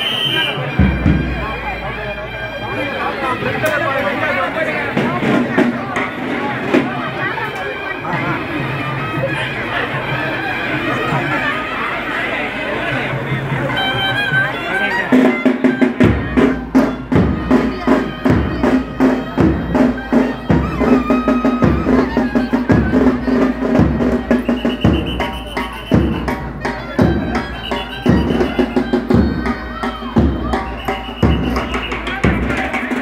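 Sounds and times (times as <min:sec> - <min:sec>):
high pipe melody: 0:13.7 - 0:33.0
sharp drum strokes: 0:15.1 - 0:33.0.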